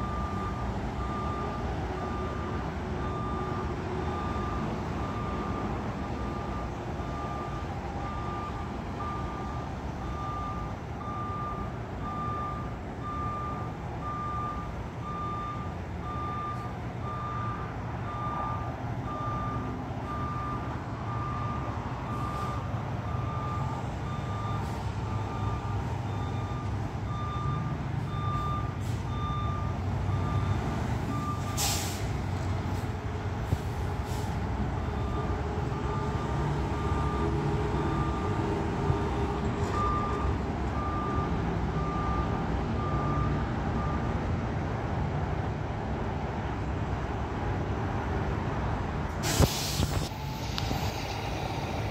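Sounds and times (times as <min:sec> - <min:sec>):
truck backup alarm beeping: 0:00.0 - 0:45.0, 0:49.2 - 0:51.9
air hiss: 0:49.2 - 0:51.9.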